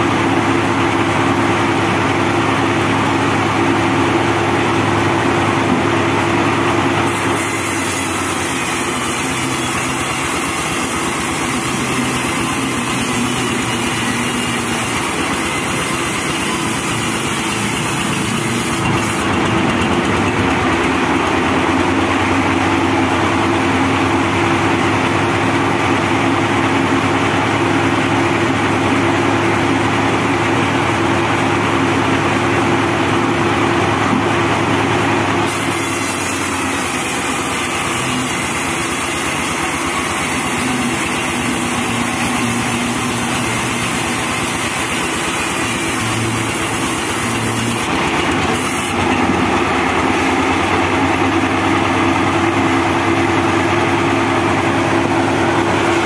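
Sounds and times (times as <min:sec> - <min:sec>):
band sawmill cutting log: 0:00.0 - 0:56.0.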